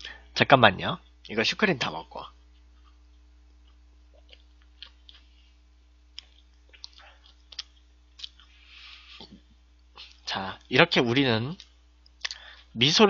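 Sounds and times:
steady low hum: 0.0 - 13.0
mouth chewing wetly: 2.5 - 5.4, 6.2 - 8.6.

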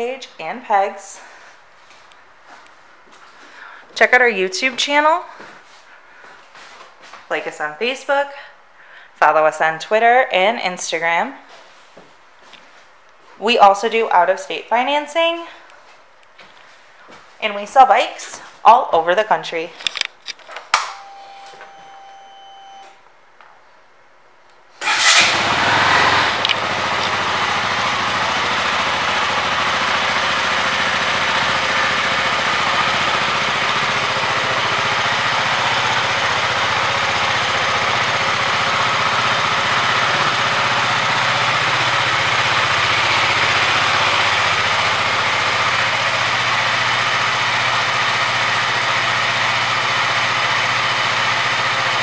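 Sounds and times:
motorcycle engine starting and idling: 24.8 - 52.0.

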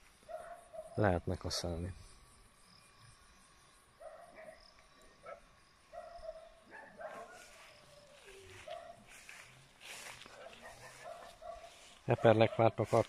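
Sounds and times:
dog barking faintly: 4.0 - 13.0.

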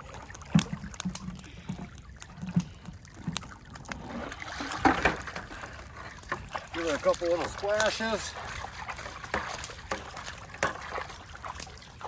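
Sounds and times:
water splashing: 0.0 - 12.0
plastic sluice box clunking: 4.6 - 5.5.

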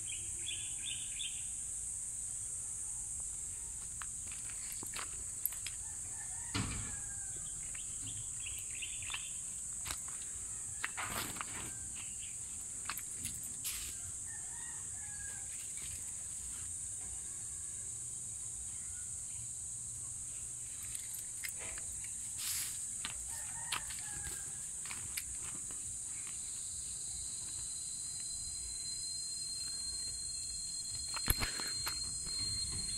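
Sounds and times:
high-pitched insect drone: 0.0 - 32.9
footsteps on gravel: 4.2 - 5.8, 9.0 - 12.2, 22.4 - 26.4.

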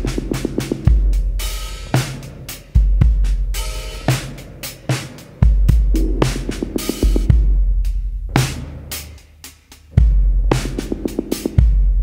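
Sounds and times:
drum machine beat: 0.0 - 12.0
deep sustained bass: 5.9 - 8.4.

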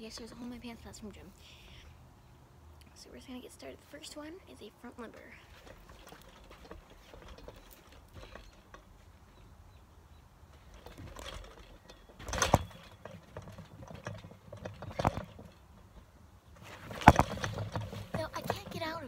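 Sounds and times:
light rustling on trampoline: 2.9 - 19.0
sharp thumps on trampoline mat: 16.8 - 18.6.

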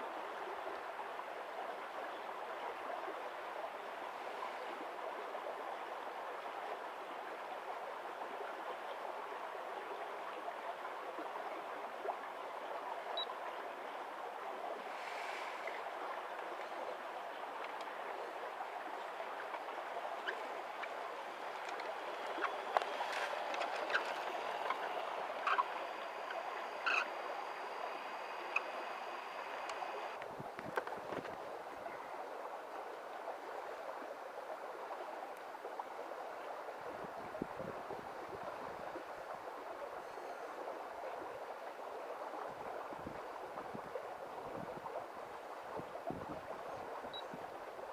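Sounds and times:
running water rushing: 0.0 - 47.9
faint high whine: 12.4 - 30.2, 38.2 - 41.2
small clicks and crunches: 22.7 - 24.4.

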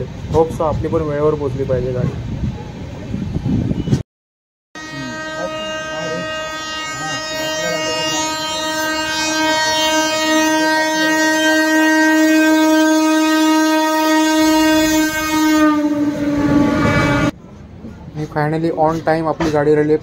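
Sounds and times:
locomotive air horn blast: 4.8 - 17.4.

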